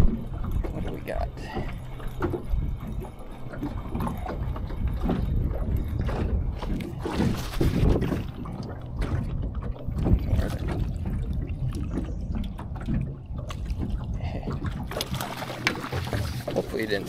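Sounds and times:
water lapping against a boat: 0.0 - 17.0
wind buffeting microphone: 0.0 - 17.0.

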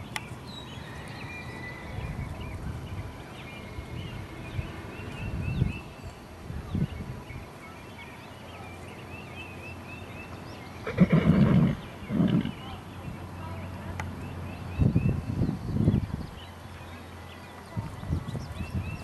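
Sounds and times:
birds chirping faintly: 0.0 - 19.0
horse whinnying: 10.8 - 12.6.

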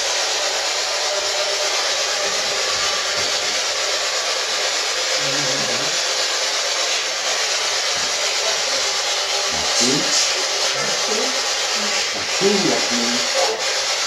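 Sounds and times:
faint voice-like fragment: 5.2 - 6.0, 9.5 - 13.6
radio static: 5.2 - 6.0, 9.5 - 13.6.

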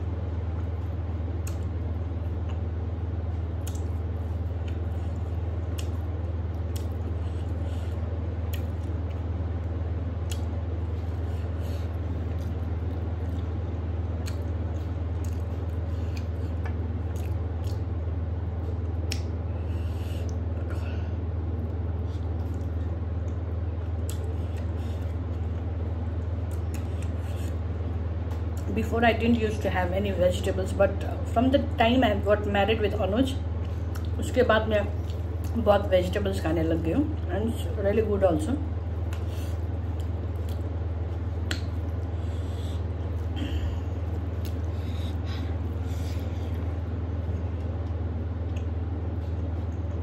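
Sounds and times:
steady low hum: 0.0 - 50.0
chewing: 3.6 - 9.3, 10.2 - 20.5, 21.7 - 28.7, 33.6 - 34.2, 39.0 - 43.4, 44.0 - 50.0.

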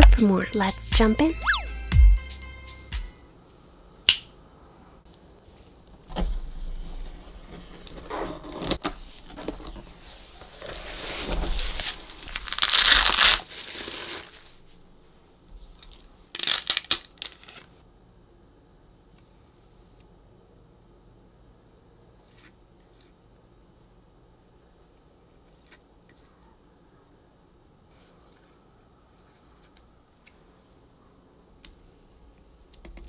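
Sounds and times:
cardboard and bubble wrap rustling: 7.1 - 14.7
plastic sleeve crackling: 10.5 - 14.6, 15.8 - 17.7.

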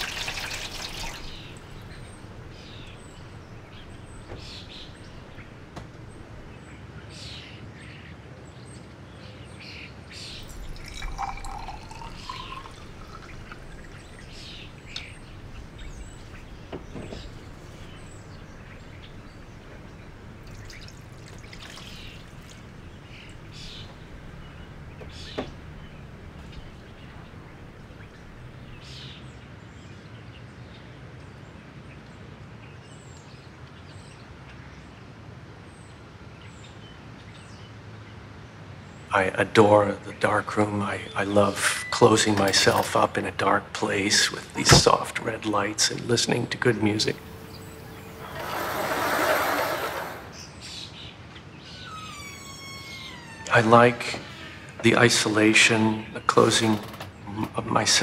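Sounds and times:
liquid pouring into glass: 0.0 - 4.8, 10.3 - 28.8
low steady hum: 10.3 - 29.1.

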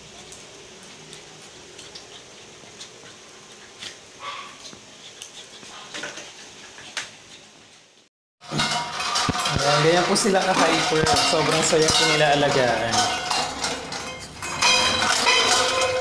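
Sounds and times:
dogs scuffling: 8.6 - 16.0.

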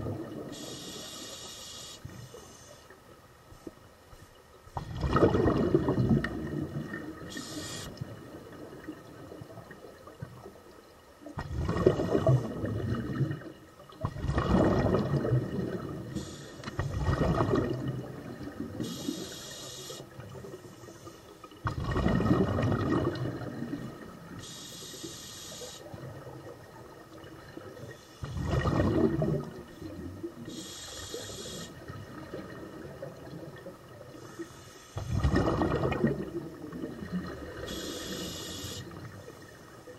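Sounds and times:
bubbles gurgling underwater: 0.0 - 0.6, 4.8 - 10.6, 11.3 - 16.2, 16.8 - 19.1, 21.6 - 24.4, 25.8 - 30.5, 31.8 - 34.2, 35.0 - 38.2
regulator air hiss: 0.5 - 2.9, 7.3 - 8.0, 16.1 - 16.8, 18.8 - 21.4, 24.4 - 25.9, 30.5 - 31.8, 34.2 - 35.1, 37.7 - 38.9.

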